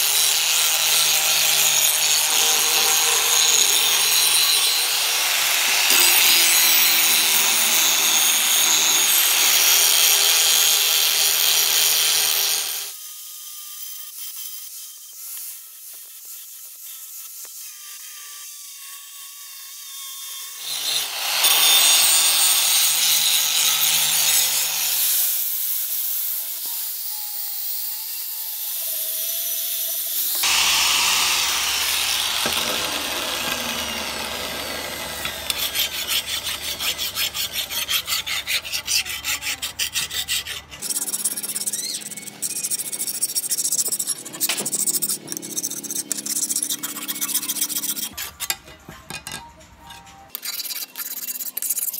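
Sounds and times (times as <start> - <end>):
abrasive scraping on metal blade: 32.2 - 51.9
rubbing strokes on metal: 35.2 - 48.6, 49.9 - 51.9.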